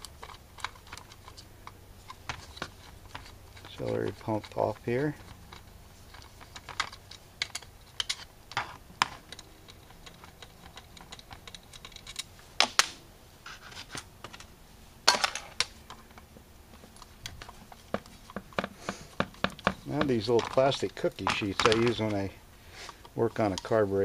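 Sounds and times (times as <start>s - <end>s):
screwdriver and metal parts clinking: 0.0s - 12.3s, 16.8s - 22.4s.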